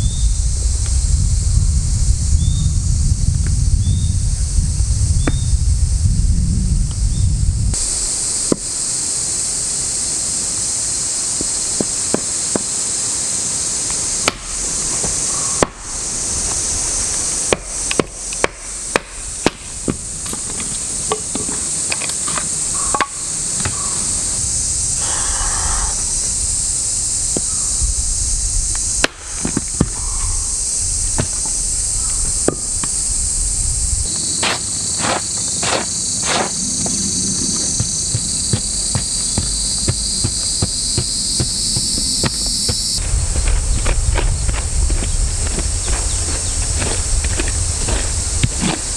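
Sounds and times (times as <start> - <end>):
high insect drone: 0.0 - 48.9
axe chopping wood: 14.2 - 15.9, 17.5 - 20.5, 22.9 - 23.8, 29.0 - 30.0, 34.4 - 37.0, 37.7 - 42.8.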